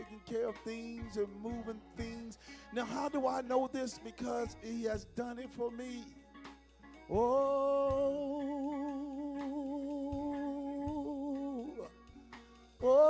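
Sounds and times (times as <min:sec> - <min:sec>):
person singing long note with vibrato: 0:07.1 - 0:12.0.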